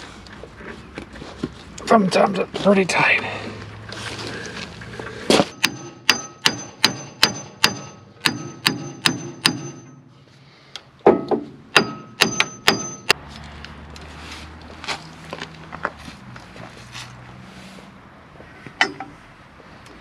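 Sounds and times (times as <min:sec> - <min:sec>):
hammer striking steel nut: 0:05.4 - 0:10.1, 0:11.0 - 0:13.2.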